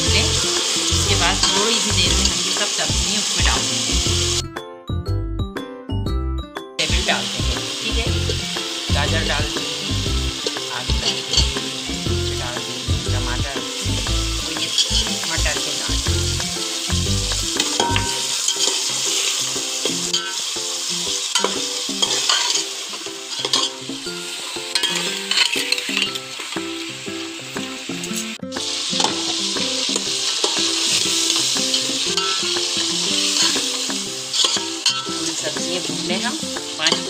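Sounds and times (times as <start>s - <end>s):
vegetables sizzling in hot oil: 0.0s - 4.5s, 6.8s - 37.0s
ladle scraping metal pot: 17.6s - 19.3s, 21.4s - 22.7s, 23.3s - 23.8s, 24.7s - 26.2s, 34.3s - 35.3s.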